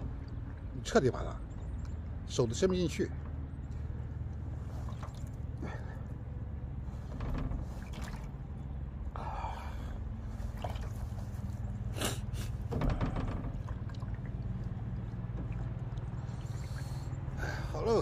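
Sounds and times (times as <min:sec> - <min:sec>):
steady low hum: 0:00.0 - 0:18.0
water splashing in plastic basin: 0:07.8 - 0:08.3, 0:10.4 - 0:11.2.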